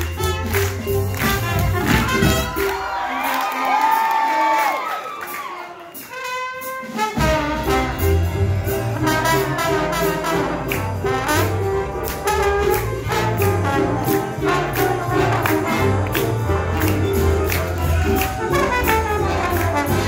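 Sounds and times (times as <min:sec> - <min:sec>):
trombone solo: 0:00.0 - 0:02.8, 0:06.1 - 0:20.0
bass: 0:00.0 - 0:03.2, 0:07.1 - 0:20.0
drums: 0:00.0 - 0:20.0
piano: 0:00.0 - 0:20.0.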